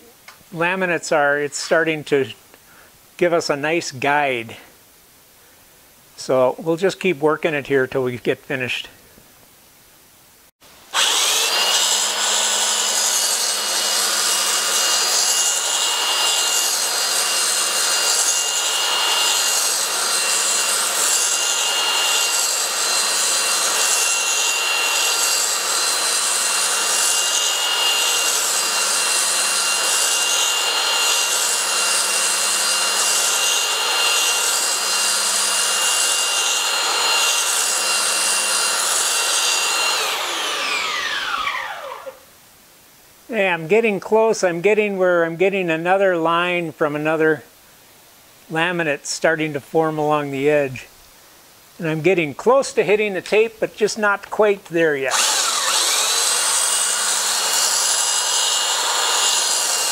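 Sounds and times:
belt sander whining: 10.9 - 42.2, 55.1 - 59.9
sander grinding plywood: 10.9 - 42.2, 53.3 - 59.9.

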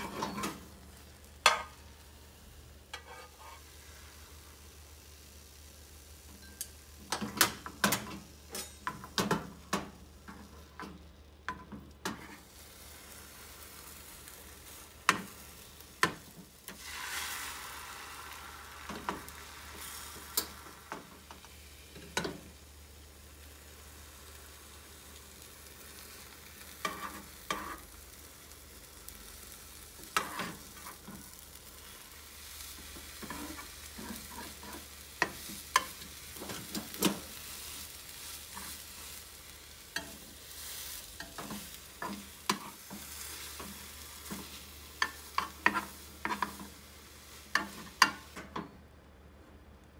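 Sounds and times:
egg sizzling in a pan: 0.0 - 48.5
utensil tapping and scraping pan: 2.9 - 3.6, 26.8 - 27.8, 32.9 - 37.2, 41.2 - 46.7, 47.5 - 48.7.

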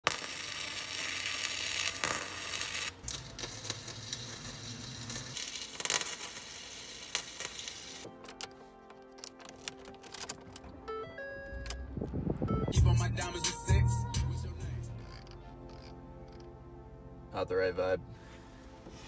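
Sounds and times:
arc welder crackling and sizzling: 0.0 - 8.2.

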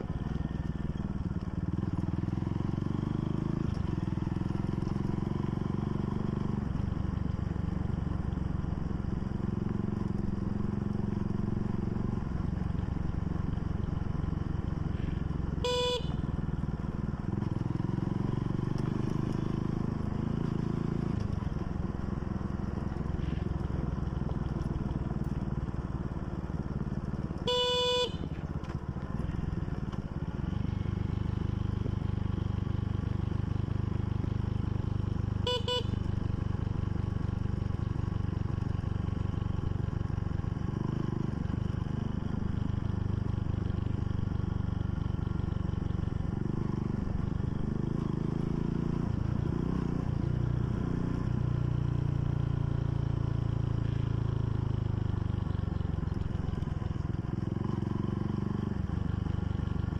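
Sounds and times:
motorcycle engine running: 0.0 - 59.9
horn beeps: 15.5 - 16.4, 27.4 - 28.4, 35.4 - 36.2.

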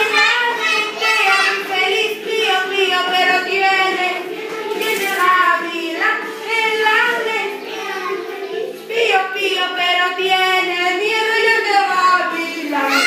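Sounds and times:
children singing in unison: 0.0 - 11.3.

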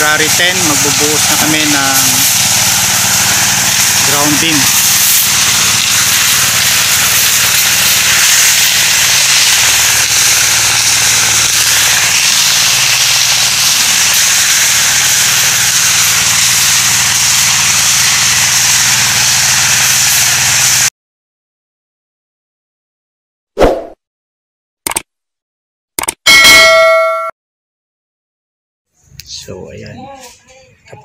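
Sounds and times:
loud hiss: 0.0 - 20.9.

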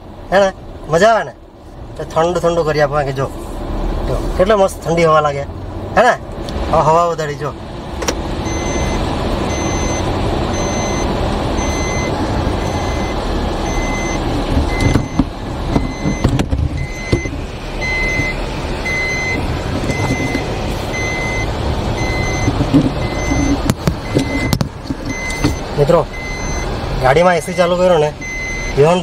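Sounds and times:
electronic warning chime beeping: 8.5 - 15.2, 15.8 - 26.7, 27.4 - 29.0.

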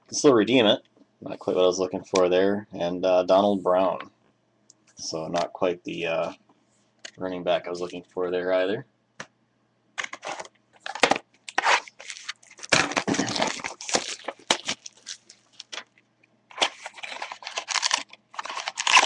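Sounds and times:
cardboard box being opened: 10.0 - 15.8, 16.6 - 19.0
plastic wrapper crinkling and tearing: 10.0 - 19.0.

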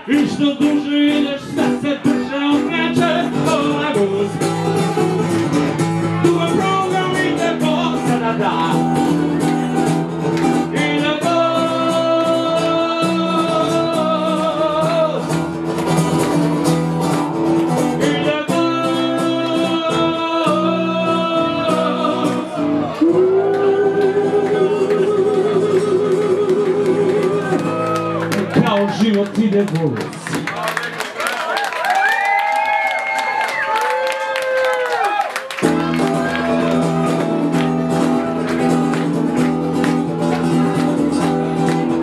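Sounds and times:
man singing into microphone: 0.0 - 4.9, 6.1 - 9.8, 10.4 - 15.5, 17.9 - 29.9, 35.7 - 39.1
amplified acoustic guitar strumming: 0.0 - 29.4, 35.6 - 42.0.

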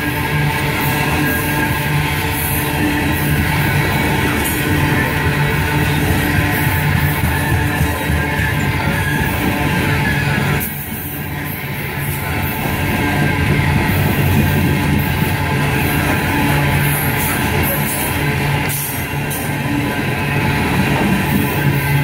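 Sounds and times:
rock music with guitar: 0.0 - 22.0
train cars rolling past: 0.0 - 22.0.

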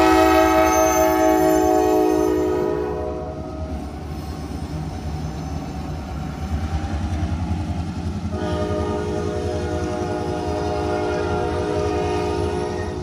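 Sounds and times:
diesel locomotive engine rumble: 0.0 - 13.0
wheel-on-rail noise: 3.4 - 13.0.

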